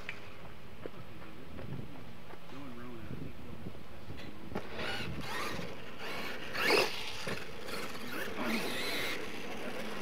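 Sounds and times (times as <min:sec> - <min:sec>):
toy truck motor whining: 0:04.6 - 0:10.0.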